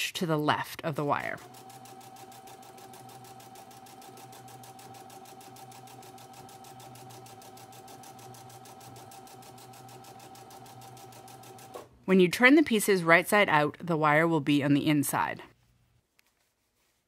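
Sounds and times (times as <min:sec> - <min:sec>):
sewing machine motor whine: 0:01.4 - 0:11.8.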